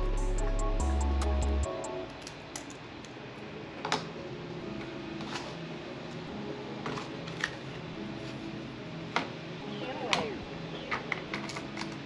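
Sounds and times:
small parts clicking on workbench: 0:10.9 - 0:12.0.

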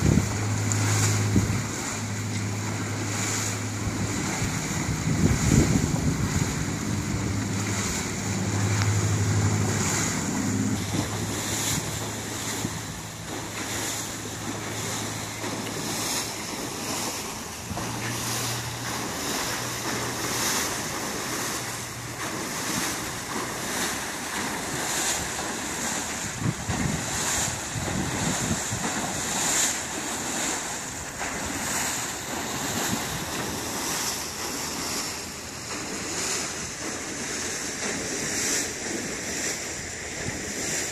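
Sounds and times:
low steady hum: 0:00.0 - 0:28.6
wind buffeting microphone: 0:00.0 - 0:39.2
propeller churning water: 0:00.0 - 0:40.9.

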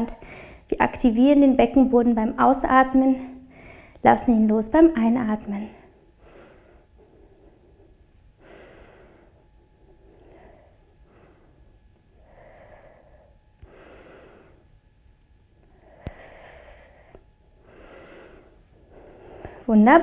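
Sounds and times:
woman breathing: 0:00.1 - 0:00.7, 0:03.2 - 0:04.0, 0:05.7 - 0:19.8.

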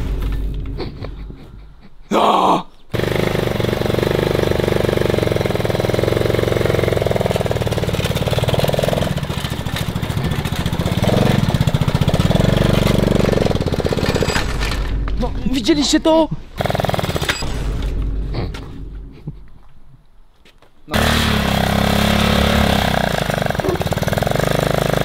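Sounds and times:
small motorcycle engine starting: 0:02.9 - 0:14.8, 0:16.6 - 0:17.5, 0:20.9 - 0:25.0.

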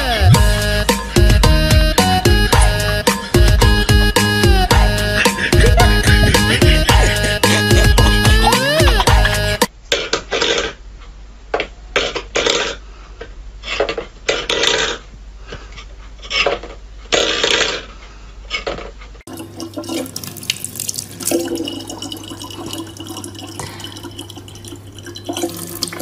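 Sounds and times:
tap water pouring into bottle: 0:19.3 - 0:26.0.

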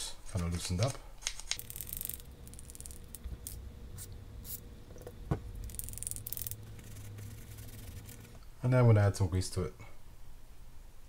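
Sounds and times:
fishing reel part clicking: 0:01.5 - 0:03.6, 0:05.6 - 0:06.6.

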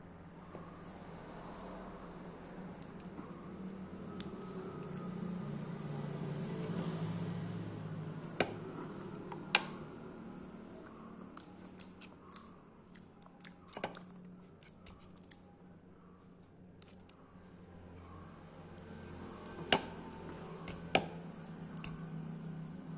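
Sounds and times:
wet squishing and chewing: 0:04.1 - 0:06.8, 0:10.8 - 0:15.6.

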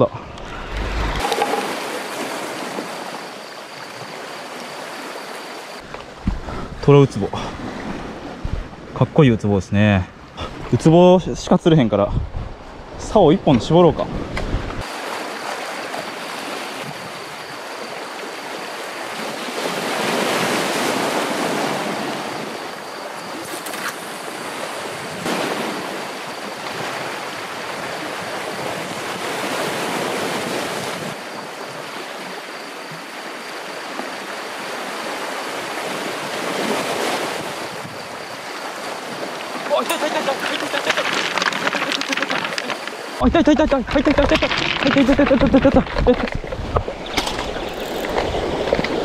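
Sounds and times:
waves washing against rocks: 0:38.6 - 0:49.0.

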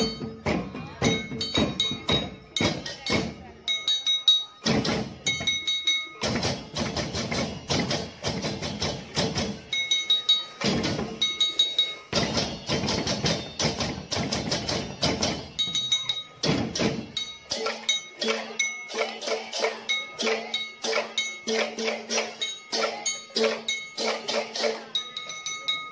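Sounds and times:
high metallic ringing: 0:00.0 - 0:06.3, 0:09.7 - 0:13.6, 0:15.4 - 0:25.9
cymbals: 0:00.0 - 0:25.9
drums: 0:00.0 - 0:25.9
wooden bells: 0:00.0 - 0:25.9.

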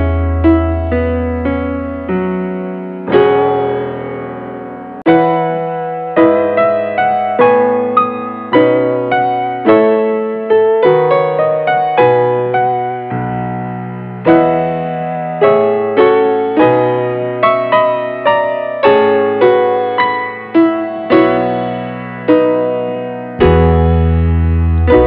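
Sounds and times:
piano chords: 0:00.0 - 0:25.0
steady low bass: 0:23.4 - 0:25.0.

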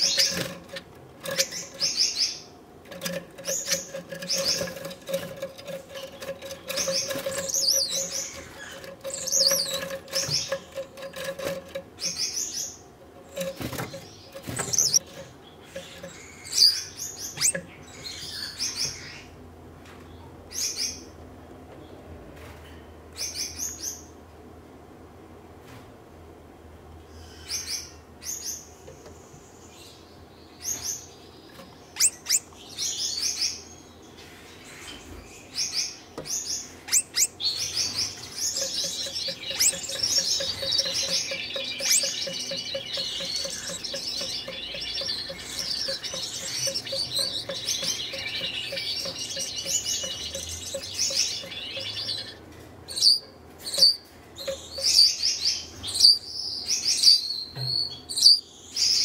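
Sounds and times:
finch chirps: 0:00.0 - 0:19.4, 0:30.6 - 0:33.8, 0:34.6 - 0:59.0
finch warbling song: 0:36.9 - 0:55.2
fast even ticking: 0:38.5 - 0:52.4.

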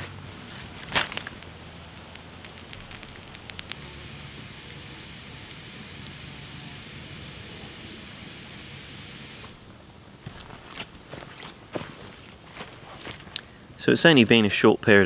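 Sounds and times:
campfire crackles and pops: 0:00.7 - 0:09.8
hiss of flames: 0:01.4 - 0:09.6.

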